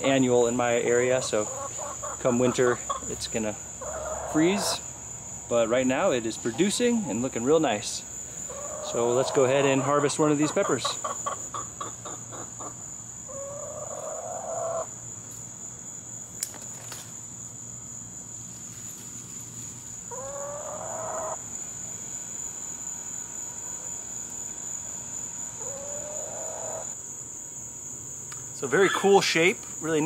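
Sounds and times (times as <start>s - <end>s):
insects droning: 0.0s - 30.0s
long pitched animal calls: 25.6s - 27.0s.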